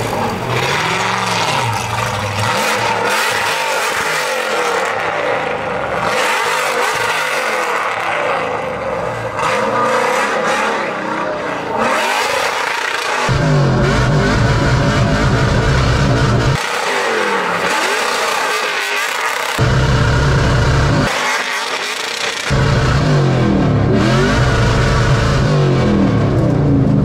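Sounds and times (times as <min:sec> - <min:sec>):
car engine revving hard: 0:00.0 - 0:27.0
deeper engine sound: 0:13.3 - 0:16.6, 0:19.6 - 0:21.2, 0:22.4 - 0:27.0.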